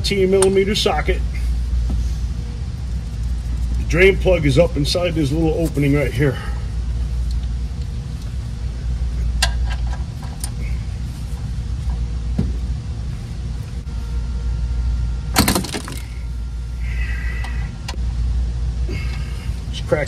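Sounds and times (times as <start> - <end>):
steady low hum: 0.0 - 20.0
metallic rattle: 15.4 - 16.1.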